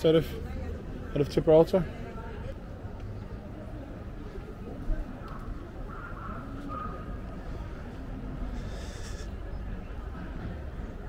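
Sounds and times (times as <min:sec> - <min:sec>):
brief hiss: 0:08.5 - 0:09.3.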